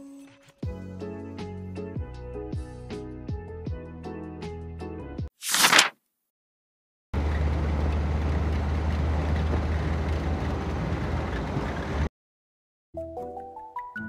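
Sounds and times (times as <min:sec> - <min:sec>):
page-turn swish effect: 0:05.3 - 0:06.0
engine drone inside a bus: 0:07.2 - 0:12.1
road noise: 0:07.2 - 0:12.1.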